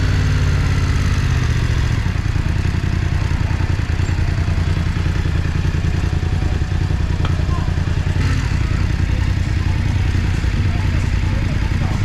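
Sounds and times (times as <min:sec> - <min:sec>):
motorcycle engine idling: 0:00.0 - 0:12.0
street noise: 0:00.0 - 0:12.0.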